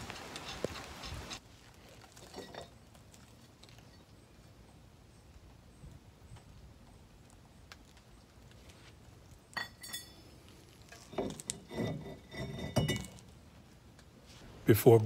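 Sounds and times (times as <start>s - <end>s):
metal clunks with ringing: 11.2s - 13.2s.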